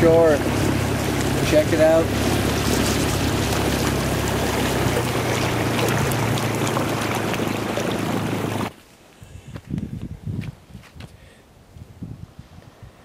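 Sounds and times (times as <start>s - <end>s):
small outboard motor running: 0.0s - 8.7s
water rushing along hull: 0.0s - 8.8s.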